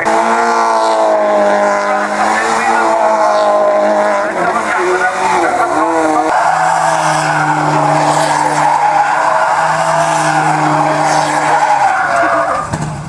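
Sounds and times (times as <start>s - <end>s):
car engines revving high: 0.0s - 13.0s
tyres skidding: 0.0s - 13.0s.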